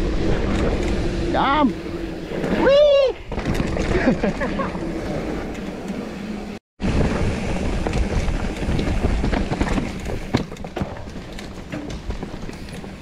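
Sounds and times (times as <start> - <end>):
bike tyre rumble on dirt: 0.0 - 13.0
bike knocking and rattling: 3.2 - 13.0.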